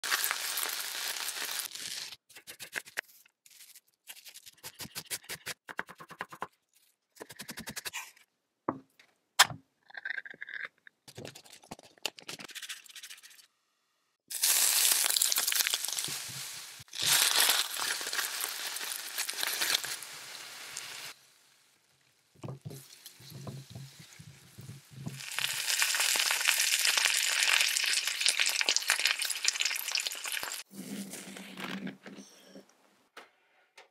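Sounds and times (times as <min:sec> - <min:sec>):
hot oil sizzling: 0:00.0 - 0:02.2, 0:14.3 - 0:30.7.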